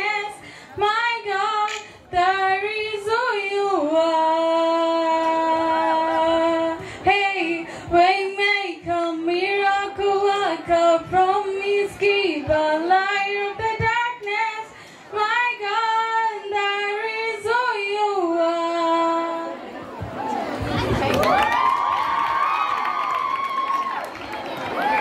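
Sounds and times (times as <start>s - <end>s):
girl singing a cappella: 0.0s - 19.6s.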